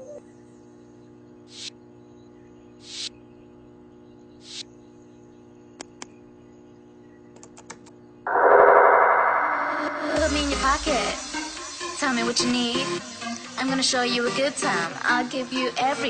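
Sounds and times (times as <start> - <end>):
rising swishes: 8.3 - 11.7
loud music: 8.3 - 12.5.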